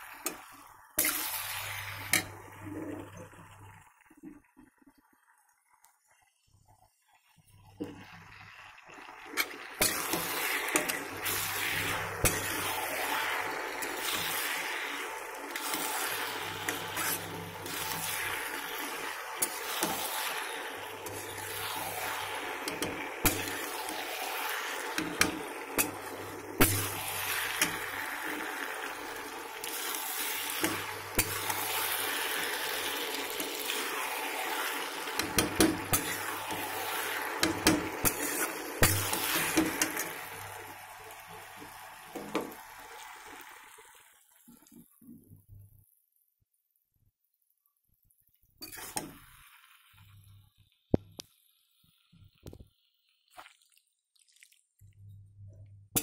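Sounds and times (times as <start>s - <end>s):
pasta sizzling in a pan: 0.0s - 5.7s, 6.8s - 45.0s, 48.4s - 53.6s
metal spatula scraping pan: 1.0s - 3.0s, 9.4s - 28.2s, 33.4s - 40.4s, 48.6s - 49.2s.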